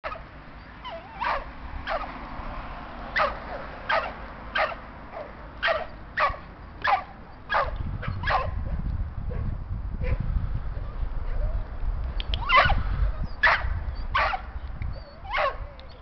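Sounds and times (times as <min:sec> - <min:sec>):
dog barking: 0:00.9 - 0:02.1, 0:03.2 - 0:08.8, 0:12.5 - 0:12.8, 0:13.4 - 0:14.5, 0:15.3 - 0:15.6.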